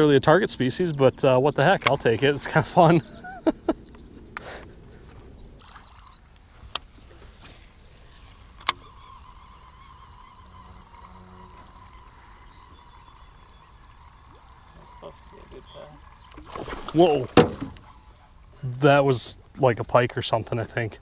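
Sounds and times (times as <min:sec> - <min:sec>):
insects chirring: 0:00.0 - 0:21.0
sharp clicks: 0:08.0 - 0:15.4.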